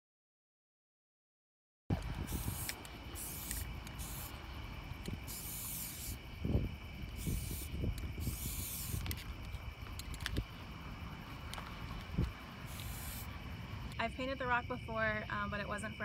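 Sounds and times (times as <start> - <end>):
spray-paint can hissing: 2.3 - 4.4, 5.2 - 6.2, 7.2 - 9.3, 12.7 - 13.3.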